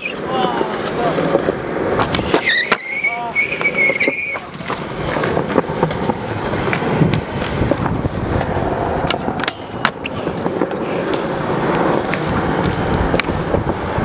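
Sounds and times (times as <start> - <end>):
skateboard wheels rolling on concrete: 0.0 - 14.0
skateboard tail snapping and landing: 1.4 - 2.9, 3.6 - 13.7.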